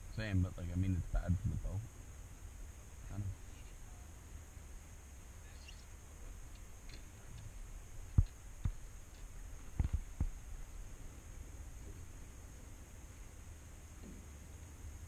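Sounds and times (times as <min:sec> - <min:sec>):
low wind rumble on microphone: 0:06.2 - 0:12.7.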